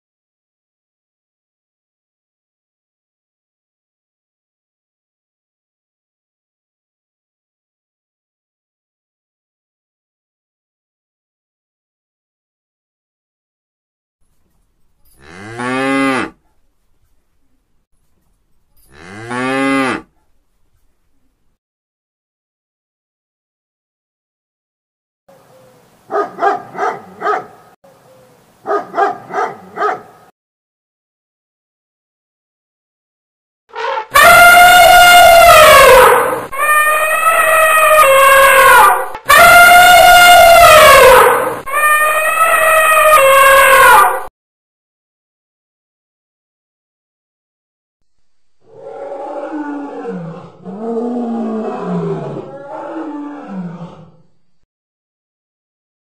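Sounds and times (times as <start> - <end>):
dog barking: 26.1 - 27.8, 28.6 - 30.3
lion roaring: 48.6 - 54.4.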